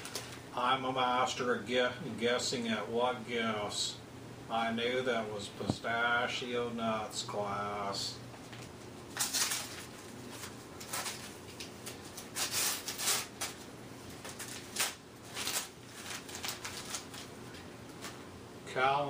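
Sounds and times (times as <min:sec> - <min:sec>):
wrapping paper tearing and crumpling: 0:09.1 - 0:17.6.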